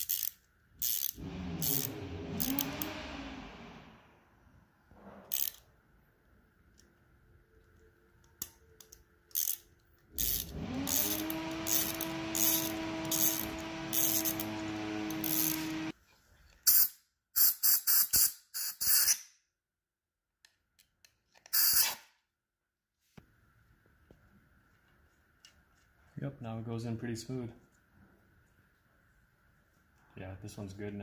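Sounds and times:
air compressor humming: 1.1s - 4.3s, 10.1s - 15.9s.

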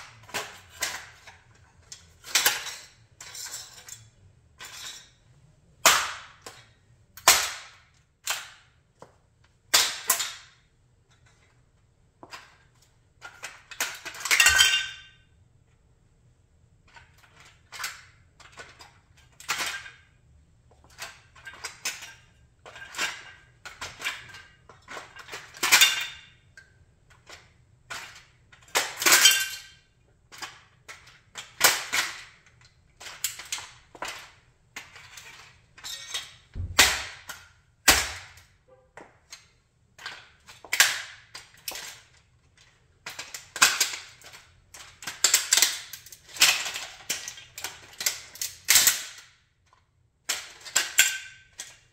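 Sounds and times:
heavier thuds: 36.5s - 37.3s.

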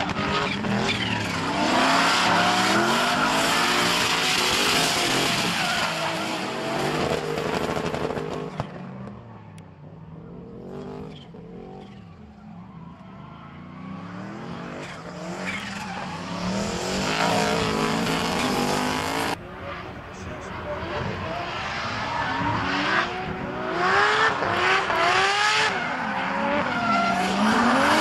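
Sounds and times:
car engines revving hard: 0.0s - 8.8s, 13.4s - 28.0s
tyres spinning and squealing: 0.1s - 7.2s, 11.0s - 20.5s.

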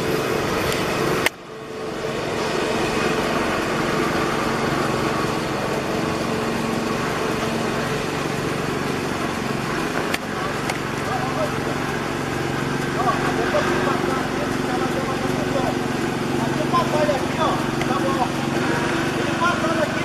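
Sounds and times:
engine drone with hiss: 0.0s - 20.0s
sharp click: 0.7s - 1.4s.

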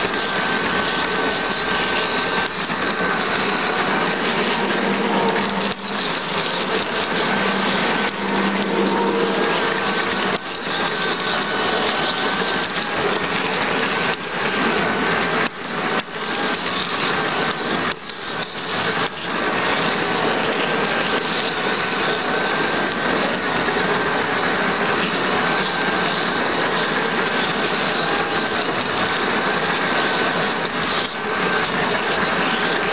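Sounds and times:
motor and gear whine: 0.0s - 32.9s
wheels rumbling on rail: 0.0s - 32.9s.

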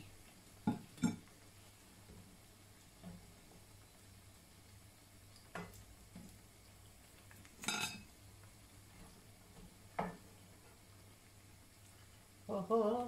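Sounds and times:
faint steady hum: 0.0s - 13.0s
metal utensils clinking: 7.6s - 8.1s.

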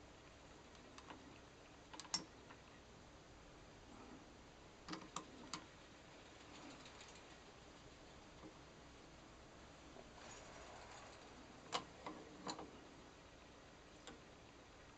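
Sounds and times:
faint metal clicks and taps: 0.7s - 2.8s, 4.9s - 7.4s, 11.7s - 12.8s, 14.0s - 14.3s.

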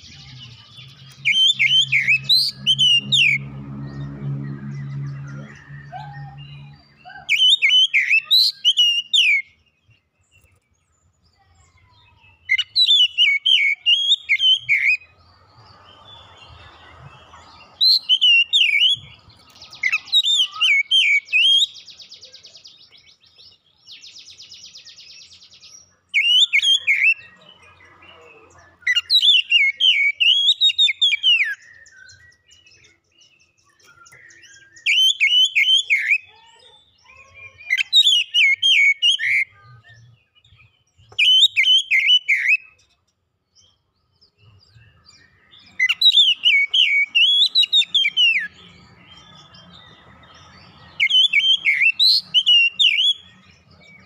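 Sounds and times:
bird singing: 0.0s - 54.0s.

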